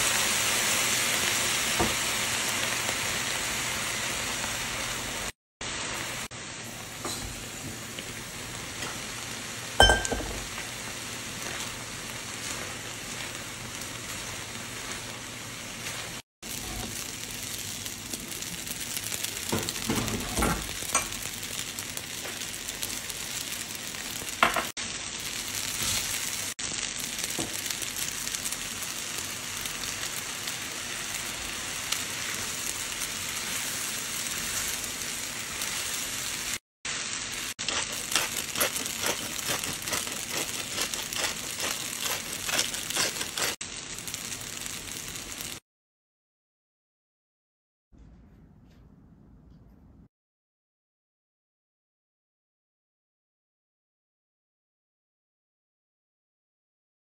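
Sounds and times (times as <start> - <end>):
pasta sizzling in a skillet: 0.0 - 45.6
spatula scraping a skillet: 37.7 - 43.6.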